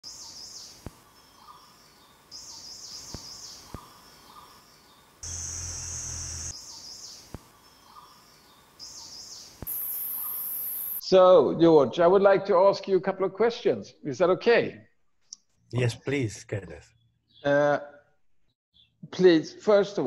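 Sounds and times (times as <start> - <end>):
high insect-like buzz: 5.2 - 6.6, 9.6 - 11.0
bird warbling call: 9.7 - 11.0.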